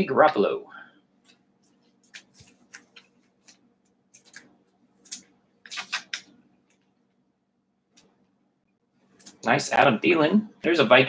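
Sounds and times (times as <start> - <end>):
trading cards clicking and shuffling: 1.2 - 6.9.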